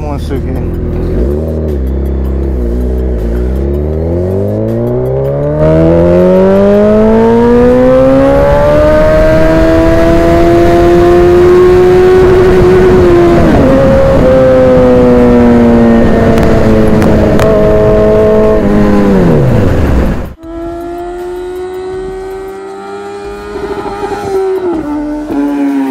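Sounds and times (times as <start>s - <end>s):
motorcycle engine accelerating: 0.0s - 25.9s.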